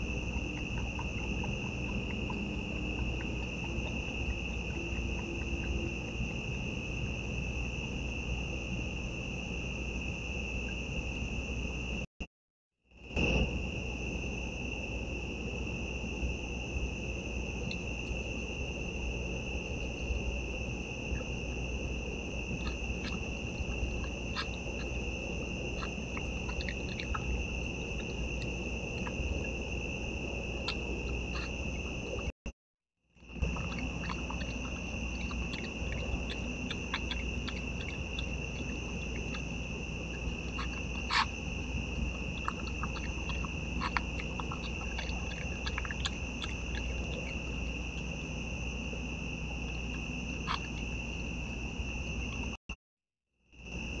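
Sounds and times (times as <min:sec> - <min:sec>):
animal chewing food: 0:00.0 - 0:06.3, 0:22.4 - 0:32.3, 0:33.4 - 0:51.0
night insects trilling: 0:00.0 - 0:12.1, 0:13.0 - 0:32.3, 0:33.2 - 0:52.6, 0:53.6 - 0:54.0.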